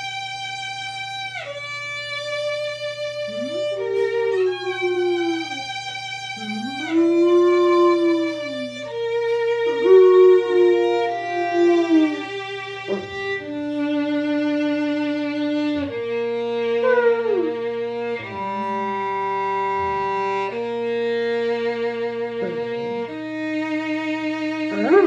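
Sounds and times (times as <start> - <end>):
violin playing long notes: 0.0 - 25.0
dog howling: 3.0 - 13.4, 15.7 - 20.5, 22.3 - 23.2, 24.5 - 25.0.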